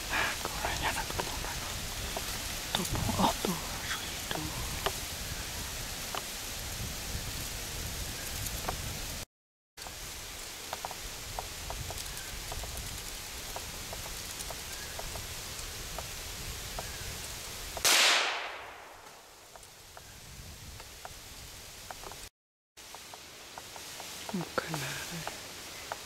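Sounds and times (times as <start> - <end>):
rustling woods: 0.0 - 9.2, 9.8 - 26.0
rifle shot: 17.8 - 19.2.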